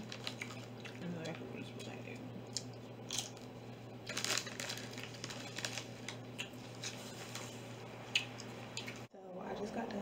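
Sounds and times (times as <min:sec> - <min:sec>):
plastic packaging crinkling: 0:00.0 - 0:00.9, 0:03.1 - 0:07.6.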